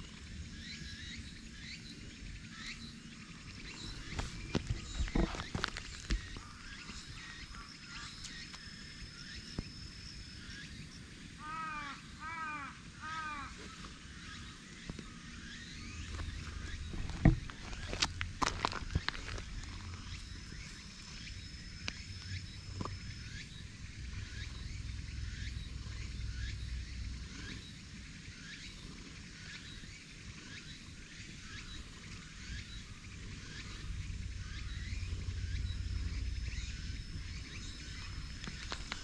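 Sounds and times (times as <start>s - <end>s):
low rumble: 15.3s - 29.8s, 30.9s - 39.0s.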